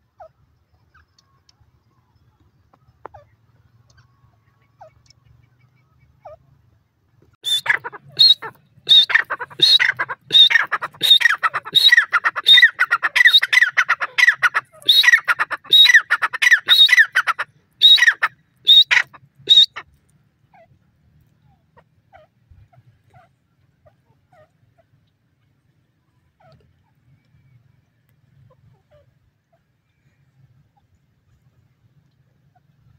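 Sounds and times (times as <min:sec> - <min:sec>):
francolin calling: 0:07.4 - 0:19.8
faint bird chirps: 0:25.7 - 0:32.9.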